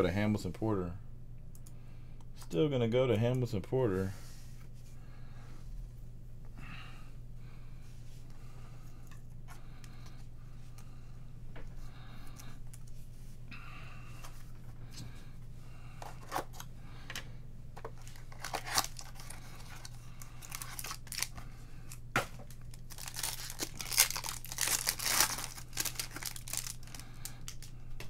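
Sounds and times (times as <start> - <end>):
steady low hum: 0.0 - 28.0
wrapper crinkling: 18.0 - 27.7
wrapper tearing: 18.0 - 27.7.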